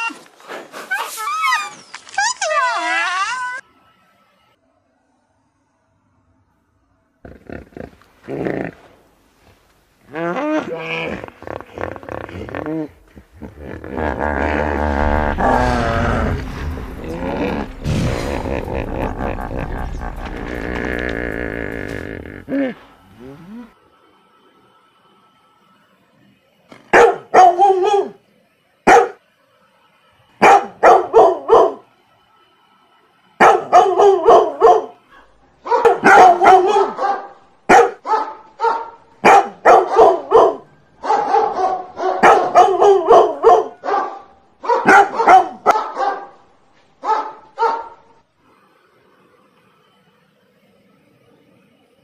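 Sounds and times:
dog barking: 26.9 - 28.2, 28.9 - 29.2, 30.4 - 31.8, 33.4 - 46.4, 47.0 - 48.1.

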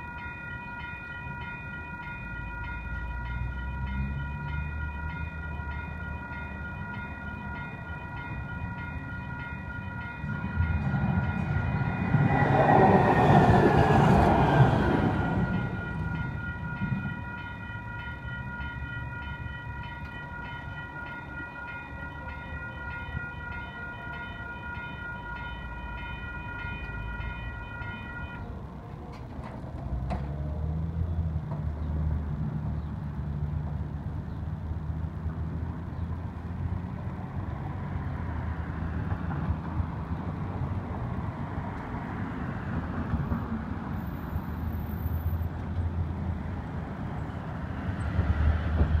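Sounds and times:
crossing bells ringing: 0.0 - 29.1
low traffic rumble: 0.0 - 49.0
car and truck engines: 1.2 - 22.3, 23.1 - 49.0.

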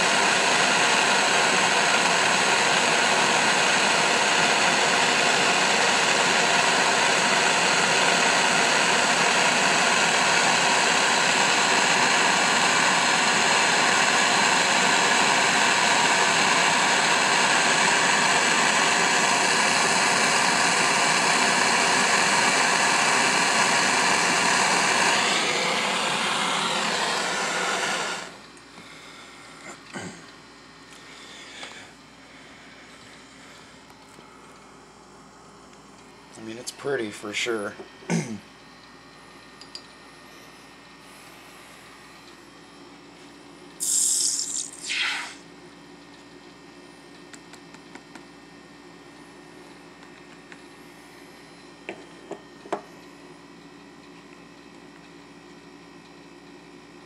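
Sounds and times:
gas torch hissing: 17.6 - 28.4, 43.8 - 45.4.

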